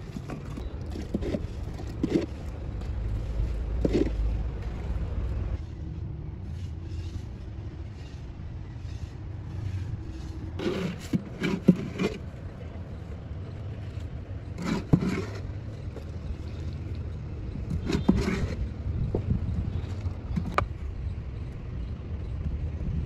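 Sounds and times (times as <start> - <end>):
mortar scraping and slapping: 0.0 - 4.4, 8.8 - 12.4, 14.5 - 16.7, 17.6 - 18.7
steady low rumble: 0.0 - 10.6.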